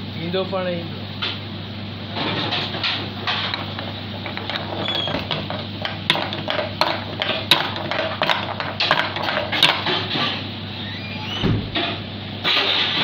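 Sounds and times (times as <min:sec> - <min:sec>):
metal spatula scraping wok: 0:02.4 - 0:10.5.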